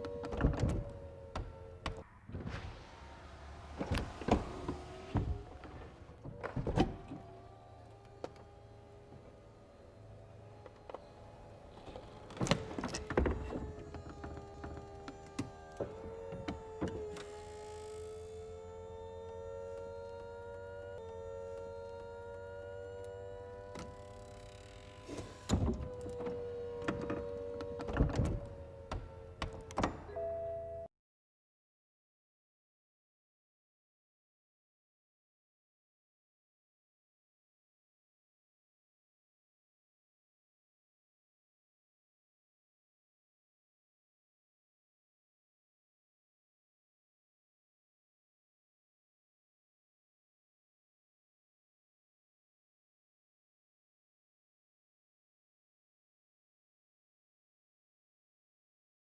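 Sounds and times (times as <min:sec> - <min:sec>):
electric motor whine: 0:02.9 - 0:29.8.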